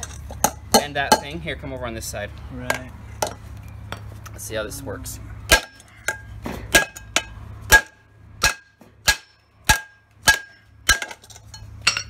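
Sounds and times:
hammer striking metal: 0:05.5 - 0:12.0.

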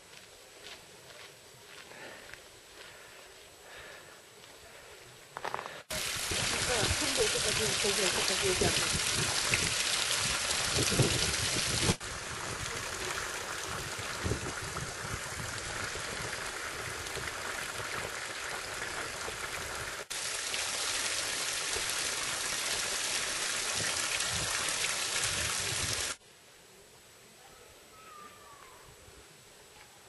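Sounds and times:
waterfall splashing onto rocks: 0:05.9 - 0:26.2.

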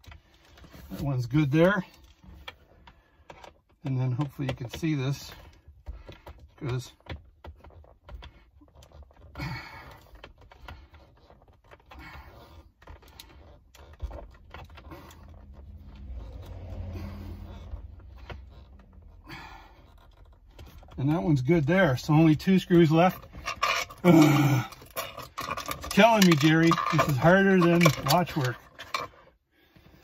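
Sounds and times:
screwdriver clicks and rattles: 0:23.1 - 0:29.2.

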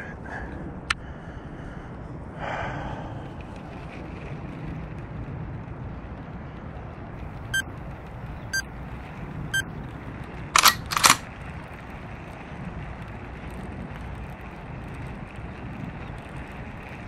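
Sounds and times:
low outdoor background hum: 0:00.0 - 0:17.0
loud sharp clicks: 0:10.6 - 0:11.2.

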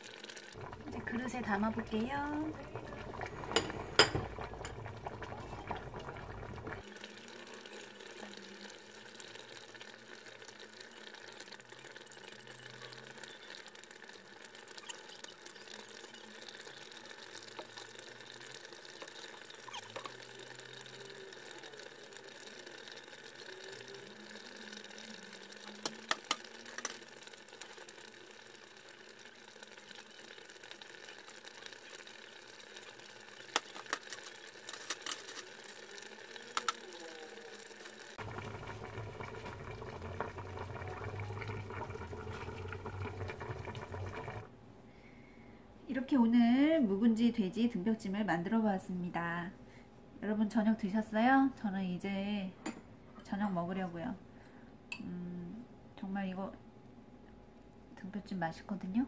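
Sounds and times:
broth being poured: 0:00.0 - 0:44.5
faint steady hum: 0:00.0 - 0:59.0
metal ladle clinking on pot: 0:03.5 - 0:04.8.

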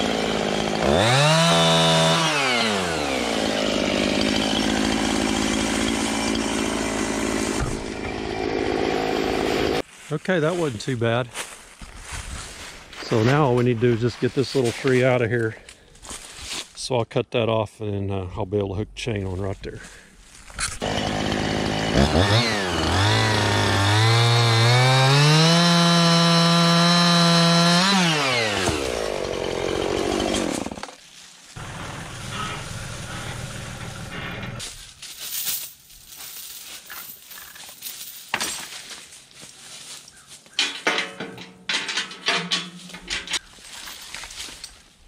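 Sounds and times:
chainsaw cutting wood: 0:00.0 - 0:09.8, 0:20.6 - 0:31.0, 0:31.6 - 0:34.6
knocks and rattles: 0:40.6 - 0:44.1.

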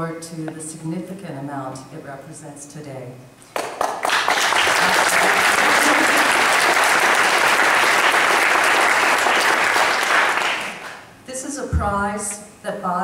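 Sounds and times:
audience applause: 0:03.5 - 0:11.0.

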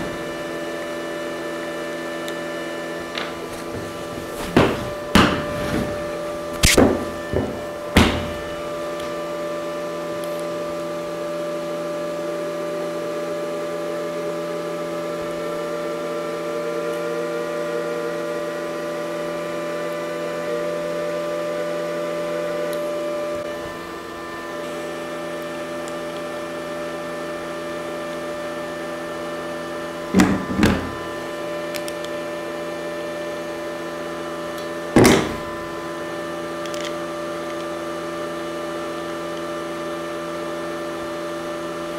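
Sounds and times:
welder humming: 0:00.0 - 0:41.9
wire-feed motor: 0:00.0 - 0:41.9.

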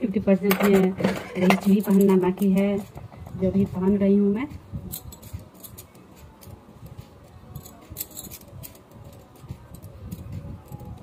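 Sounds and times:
bangles clinking: 0:00.5 - 0:11.0.

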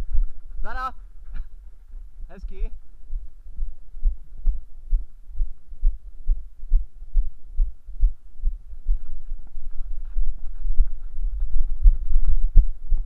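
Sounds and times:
footsteps on dirt: 0:08.9 - 0:12.7.

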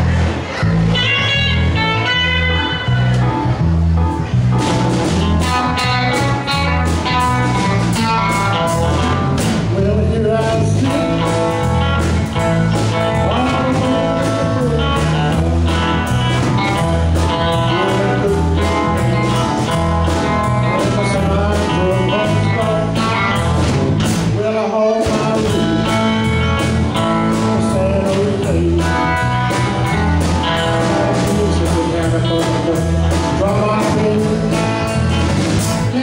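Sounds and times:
drum kit beat: 0:00.0 - 0:36.0
electric guitar: 0:00.0 - 0:36.0
heavy bass line: 0:00.0 - 0:36.0
keyboard: 0:00.0 - 0:36.0
man singing: 0:08.0 - 0:36.0.

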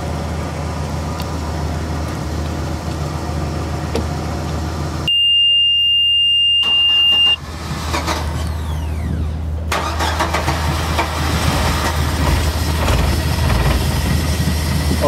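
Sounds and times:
boat engine starting and idling: 0:06.4 - 0:15.0.

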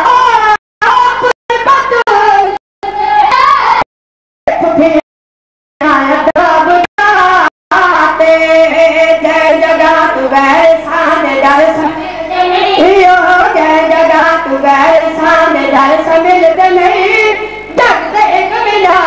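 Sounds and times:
boys singing in unison: 0:07.8 - 0:19.0.

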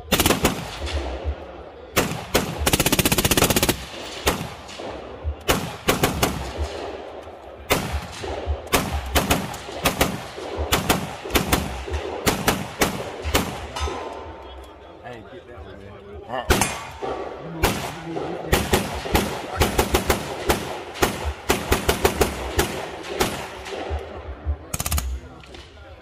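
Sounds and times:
single gunshots: 0:07.6 - 0:14.1, 0:16.5 - 0:24.2.

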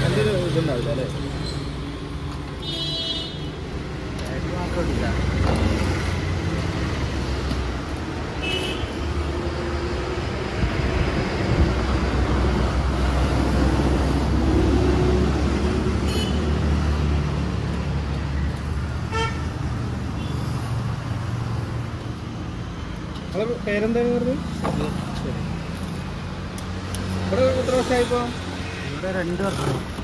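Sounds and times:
traffic engine and tyre rumble: 0:00.0 - 0:30.0
vehicle horn toots: 0:02.6 - 0:03.5.

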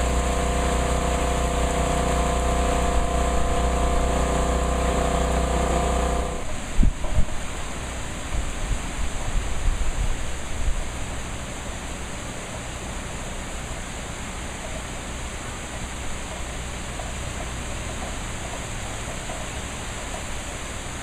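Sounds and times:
low rumbling: 0:00.0 - 0:07.1
heavy rain hissing: 0:00.0 - 0:14.3.

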